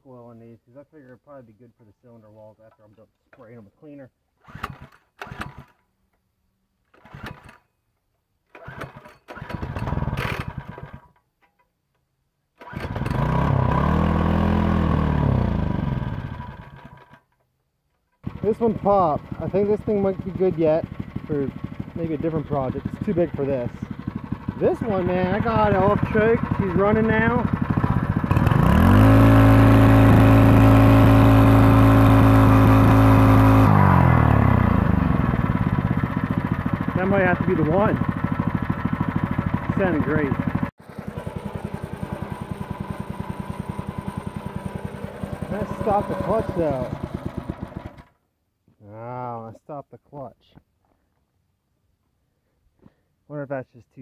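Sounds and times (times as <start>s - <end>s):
small gas engine running: 4.4s - 5.8s, 6.9s - 7.6s, 8.5s - 11.2s, 12.6s - 17.3s, 18.2s - 48.2s
recoil starter pulls: 4.4s - 5.9s, 6.8s - 7.7s, 8.4s - 11.7s, 12.6s - 13.8s, 15.6s - 48.2s.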